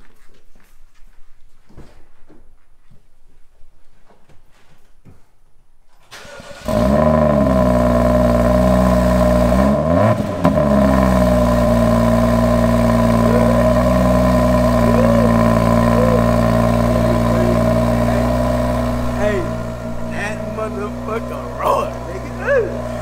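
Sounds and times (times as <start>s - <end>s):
engine starting and idling: 6.0s - 23.0s.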